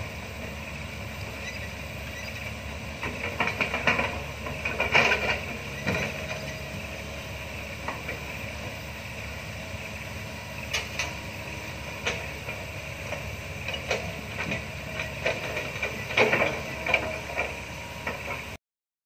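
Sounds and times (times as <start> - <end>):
excavator engine running: 0.0 - 18.6.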